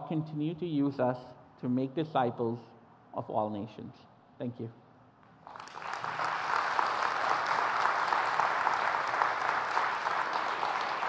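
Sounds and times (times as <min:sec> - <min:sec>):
congregation applauding: 0:05.4 - 0:11.0.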